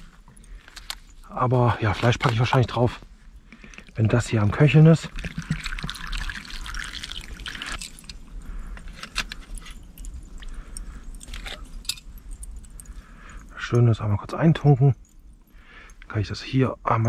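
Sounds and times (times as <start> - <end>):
water pouring into metal pot: 4.4 - 8.1.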